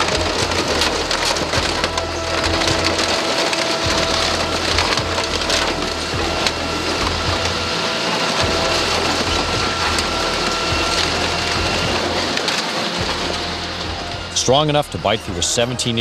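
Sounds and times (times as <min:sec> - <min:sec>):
excavator engine rumble: 0:00.0 - 0:16.0
metal crunching and cracking: 0:00.0 - 0:16.0.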